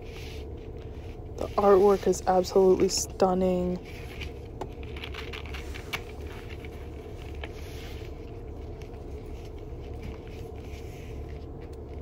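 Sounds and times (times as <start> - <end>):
steady low hum: 0.0 - 12.0
paper rustling: 3.7 - 12.0.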